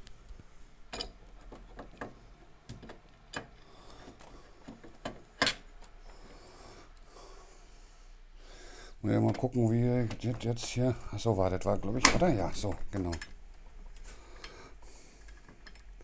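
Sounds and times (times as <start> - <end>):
clicks and knocks of hard parts: 0.9 - 6.0, 11.9 - 13.4.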